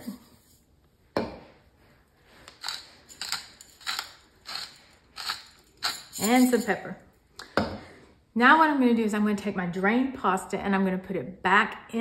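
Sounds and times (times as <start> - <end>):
salt grinder crunching: 2.5 - 6.1.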